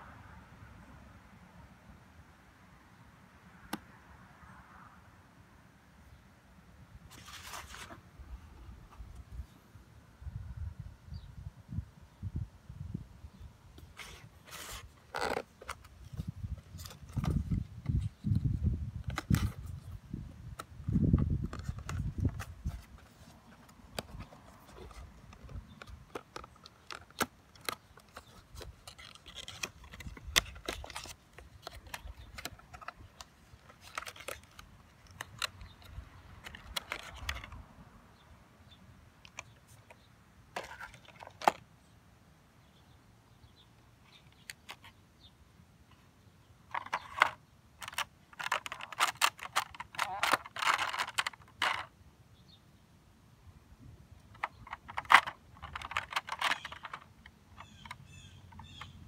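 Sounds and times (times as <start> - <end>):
plastic tray clicks and crinkles: 19.0 - 19.7, 20.6 - 37.6, 46.7 - 51.9, 54.2 - 59.0.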